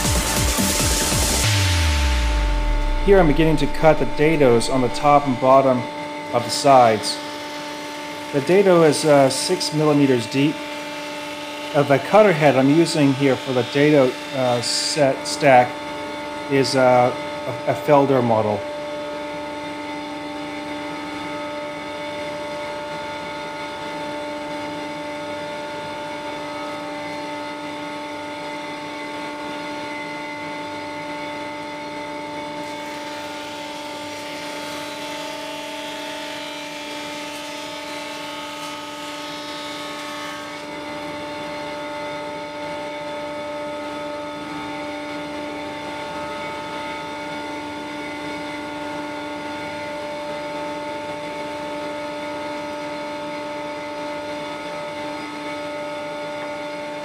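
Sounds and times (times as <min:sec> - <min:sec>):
table saw whining: 0:00.0 - 0:57.0
cutter cutting through plywood: 0:06.4 - 0:16.2, 0:31.8 - 0:42.2.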